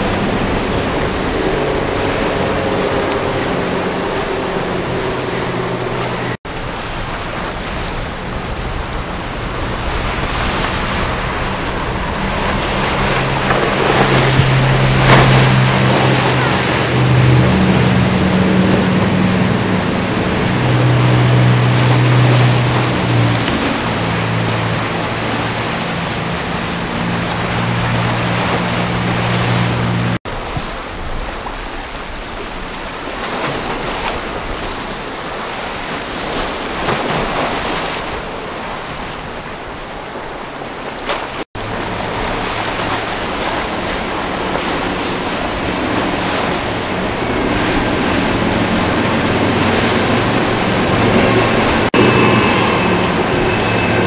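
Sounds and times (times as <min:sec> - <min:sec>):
powerboat engine drone: 0:00.0 - 0:54.0
water spray and waves: 0:00.0 - 0:54.0.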